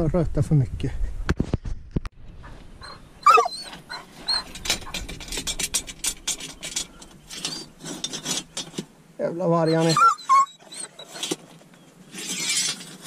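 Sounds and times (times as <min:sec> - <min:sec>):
dog whining: 0:02.8 - 0:05.4, 0:07.3 - 0:07.9, 0:09.6 - 0:11.4
faint high squeaks: 0:02.8 - 0:08.7, 0:09.6 - 0:13.0
iron bar scraping on rock: 0:02.8 - 0:09.0, 0:09.7 - 0:13.0.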